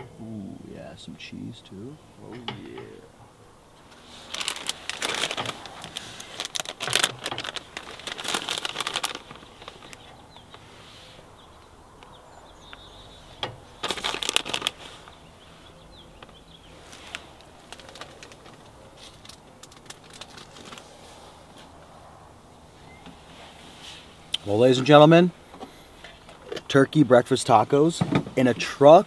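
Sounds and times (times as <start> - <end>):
plastic bag crinkling: 3.9 - 10.1, 13.8 - 15.2, 16.9 - 20.9.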